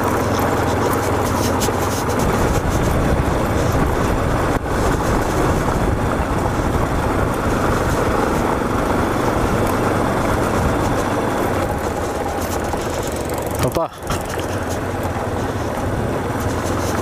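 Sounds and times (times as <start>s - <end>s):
motorcycle engine running: 0.0s - 17.0s
tyres rolling on gravel: 0.0s - 17.0s
wind rushing over microphone: 2.0s - 13.0s.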